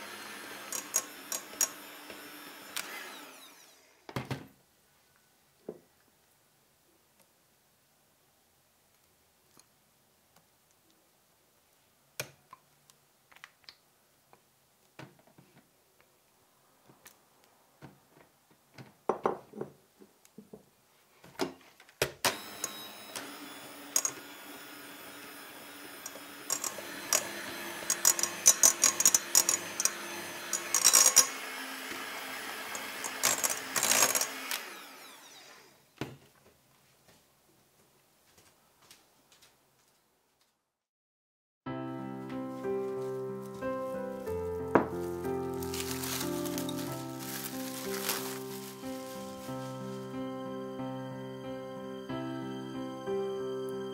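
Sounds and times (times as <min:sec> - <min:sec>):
electric hand mixer whipping: 0:00.0 - 0:04.0, 0:22.3 - 0:35.9, 0:44.7 - 0:50.0.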